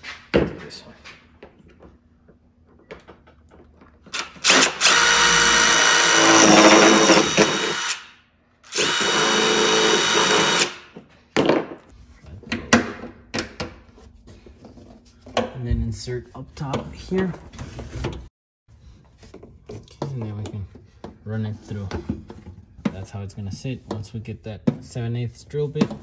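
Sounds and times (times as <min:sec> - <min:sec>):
cordless drill boring rubber: 0:04.1 - 0:08.0, 0:08.7 - 0:10.7.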